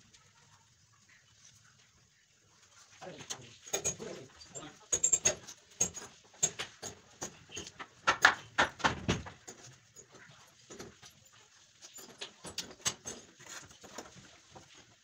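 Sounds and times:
wood knocking on wood: 0:06.6 - 0:09.5.

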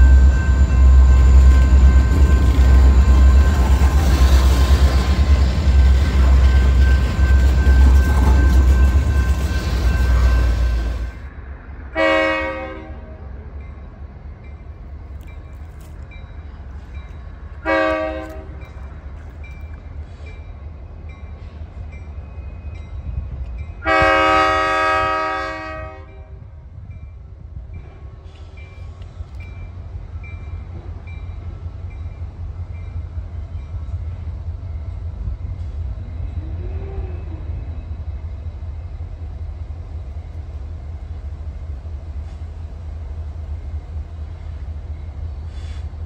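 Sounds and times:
crossing bell dinging: 0:00.0 - 0:11.3
low train rumble: 0:00.0 - 0:46.0
train air horn blasts: 0:11.9 - 0:13.2, 0:17.6 - 0:18.6, 0:23.8 - 0:26.4, 0:36.4 - 0:37.4.

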